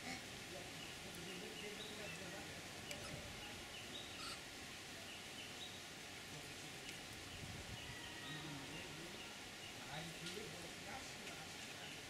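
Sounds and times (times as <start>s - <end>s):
background hiss: 0.0s - 12.0s
faint bird chirps: 0.8s - 4.4s, 6.8s - 10.3s.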